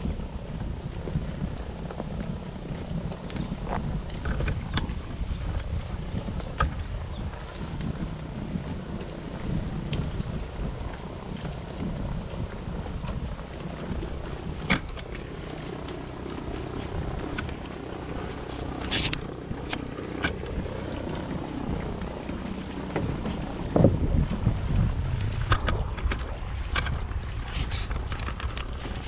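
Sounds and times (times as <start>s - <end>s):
propeller engine droning: 0.0s - 29.0s
wind buffeting microphone: 0.0s - 29.0s
sharp clicks and knocks: 25.4s - 27.0s.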